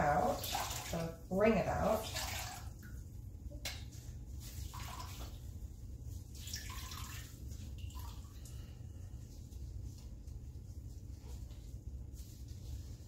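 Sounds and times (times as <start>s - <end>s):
water splashing into bucket: 0.0s - 3.0s, 4.6s - 5.5s, 6.3s - 8.6s
low steady hum: 0.0s - 13.0s.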